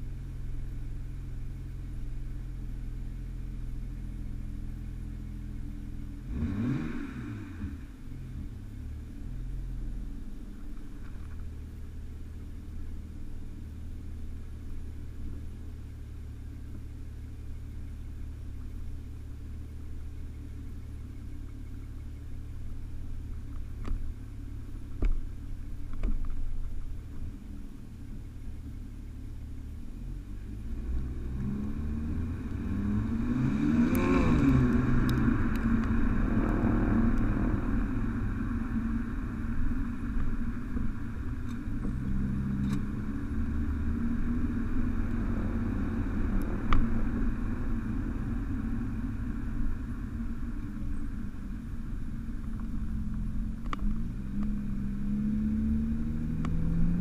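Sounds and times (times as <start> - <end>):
car exhaust drone: 0.0 - 57.0
engine revving: 6.2 - 7.9, 30.3 - 39.6, 41.8 - 50.6, 52.9 - 57.0.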